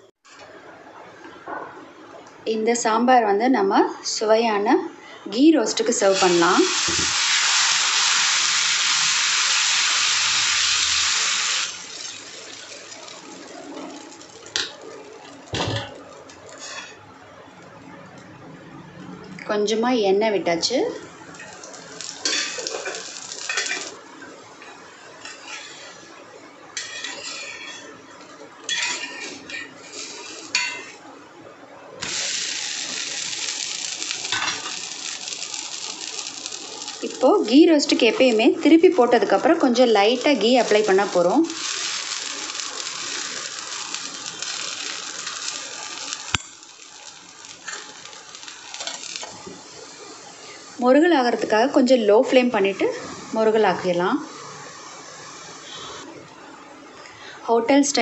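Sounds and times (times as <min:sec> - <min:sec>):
spatula scraping hot griddle: 0:16.5 - 0:17.0, 0:21.4 - 0:24.0, 0:25.2 - 0:26.0, 0:26.8 - 0:28.0, 0:28.7 - 0:31.0, 0:32.0 - 0:38.4, 0:39.7 - 0:50.6.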